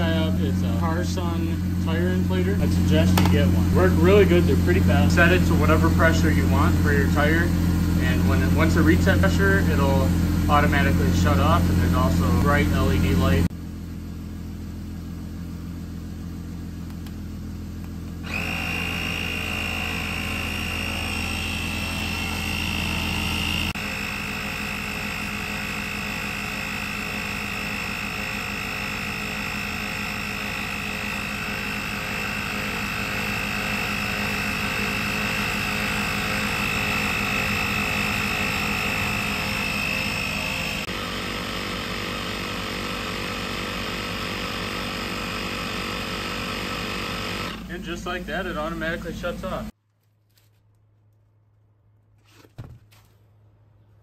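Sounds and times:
high whine: 0:00.0 - 0:13.5, 0:18.2 - 0:46.3
tire inflator compressor running: 0:00.0 - 0:49.8.

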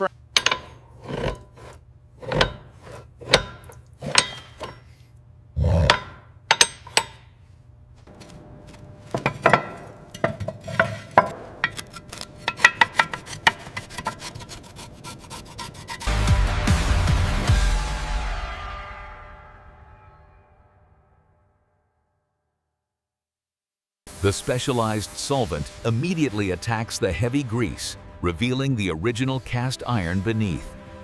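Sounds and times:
hand tool scraping hard surface: 0:00.4 - 0:05.1, 0:08.1 - 0:16.2.

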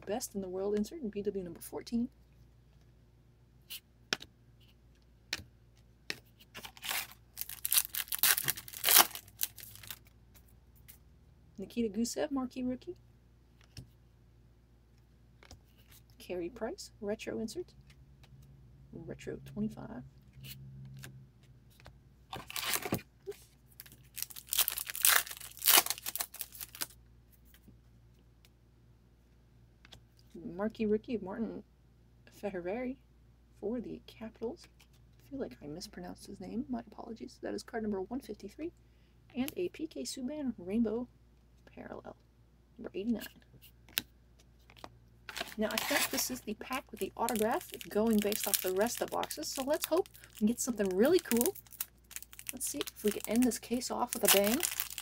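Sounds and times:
foil wrapper tearing and crinkling: 0:06.6 - 0:10.0, 0:22.4 - 0:23.0, 0:23.8 - 0:27.0, 0:45.3 - 0:55.0.

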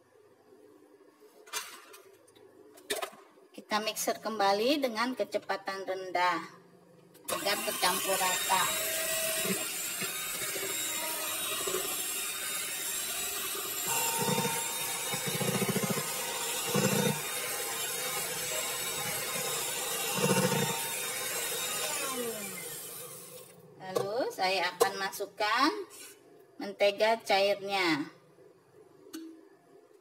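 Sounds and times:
beaters churning batter in bowl: 0:07.3 - 0:23.3
electric hand mixer running: 0:07.3 - 0:23.5.

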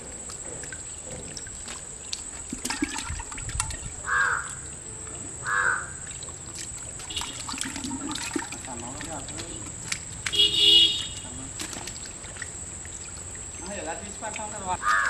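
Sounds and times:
fish wriggling through wet mud: 0:06.1 - 0:10.4, 0:11.1 - 0:15.0.

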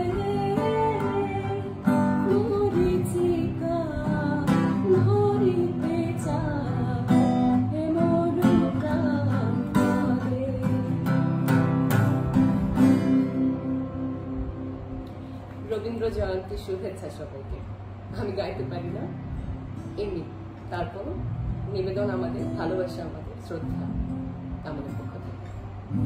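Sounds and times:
woman singing: 0:00.0 - 0:11.8
strummed acoustic guitar: 0:00.0 - 0:17.2, 0:18.0 - 0:26.0.

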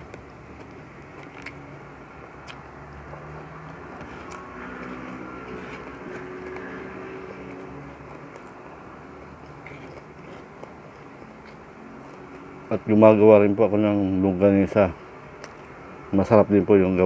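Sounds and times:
chewing clicks: 0:00.1 - 0:01.6, 0:02.4 - 0:02.7, 0:03.6 - 0:12.5, 0:15.4 - 0:15.7
vehicle engine droning: 0:00.7 - 0:13.1.

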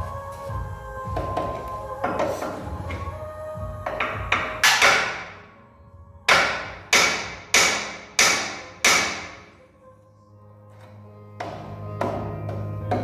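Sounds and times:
hammer striking steel: 0:03.9 - 0:05.4, 0:06.3 - 0:09.5.

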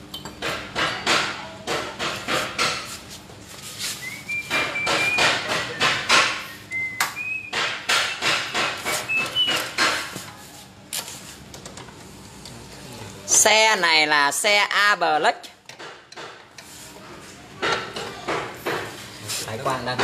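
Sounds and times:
sharp metallic knocks: 0:04.5 - 0:06.5, 0:07.5 - 0:10.2.

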